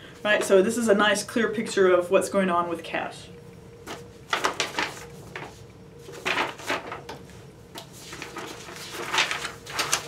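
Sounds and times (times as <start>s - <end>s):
faint steady hum: 0.0s - 10.0s
papers rustling on a desk: 3.8s - 10.0s.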